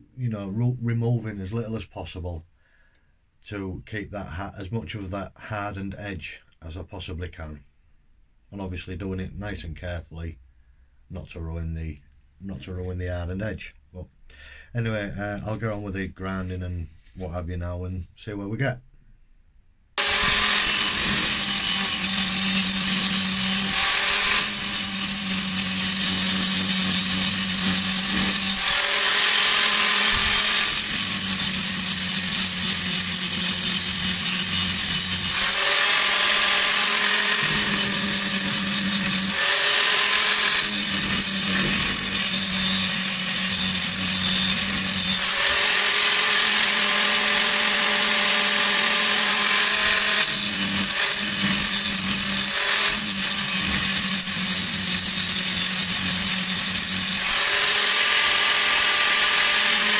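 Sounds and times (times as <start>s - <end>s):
angle grinder grinding steel: 20.0s - 59.9s.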